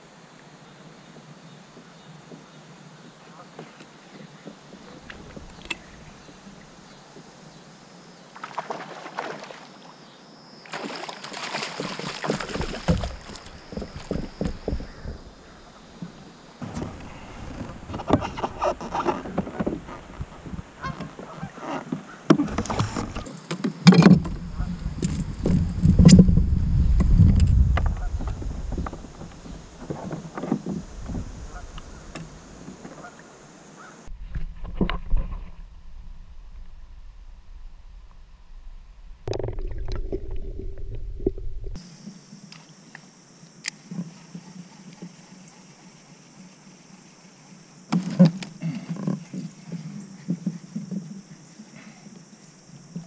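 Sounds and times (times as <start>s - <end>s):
river ambience: 0.0s - 53.0s
muffled underwater rumbling: 12.5s - 21.6s, 24.2s - 32.6s, 34.1s - 41.8s
geese honking: 20.8s - 22.3s, 32.8s - 33.2s.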